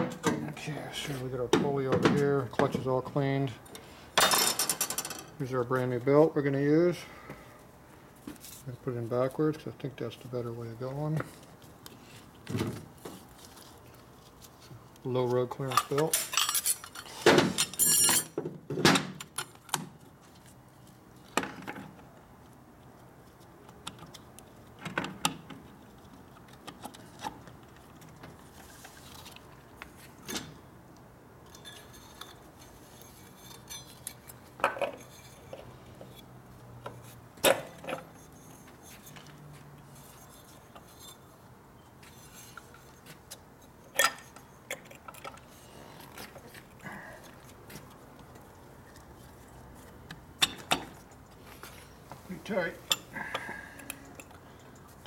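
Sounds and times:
metal tools clinking and knocking: 0:04.2 - 0:05.4, 0:15.7 - 0:18.4, 0:31.5 - 0:36.2, 0:52.8 - 0:54.8.

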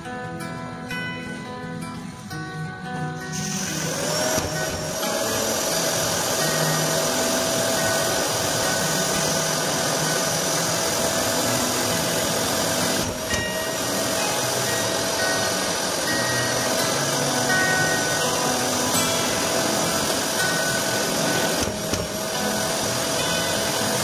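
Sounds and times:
electric drywall sander running: 0:03.3 - 0:24.0.

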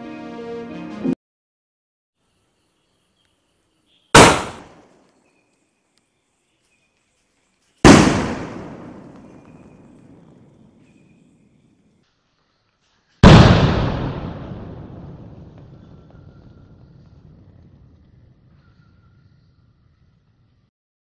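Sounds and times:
firework launch bang: 0:04.2 - 0:04.8, 0:07.8 - 0:10.8, 0:13.2 - 0:18.5
firework shell bursting: 0:04.2 - 0:04.8.

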